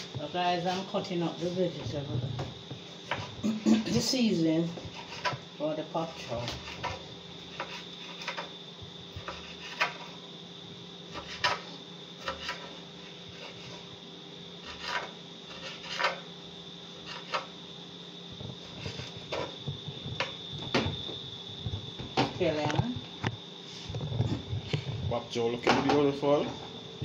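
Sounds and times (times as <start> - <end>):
steady background hum: 0.0 - 27.0.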